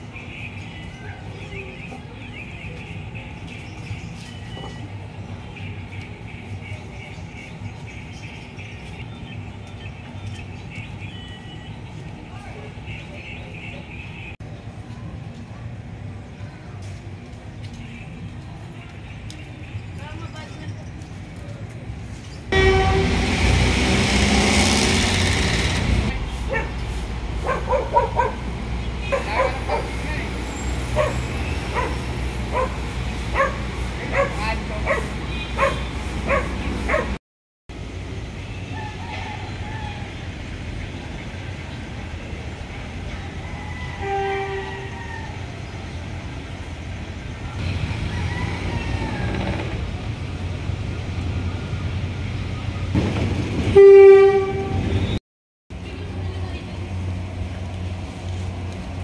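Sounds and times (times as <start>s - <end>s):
horn blowing: 22.5s - 24.7s, 44.0s - 45.0s, 53.7s - 55.2s
vehicle passing close by: 22.7s - 37.2s
dog barking: 26.5s - 26.8s, 27.4s - 30.0s, 31.0s - 37.2s.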